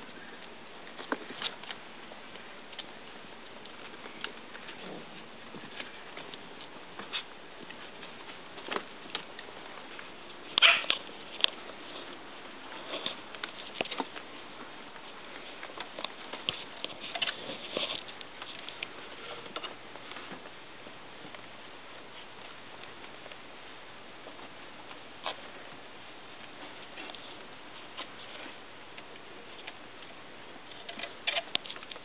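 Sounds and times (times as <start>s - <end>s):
puppies scuffling on a blanket: 0.0s - 32.0s.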